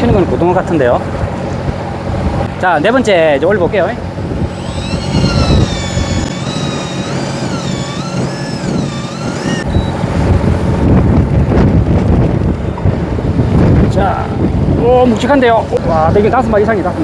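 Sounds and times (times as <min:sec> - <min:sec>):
boat rumble: 0:04.0 - 0:13.7
wind on microphone: 0:04.0 - 0:16.5
electric fishing reel whining: 0:04.4 - 0:10.1.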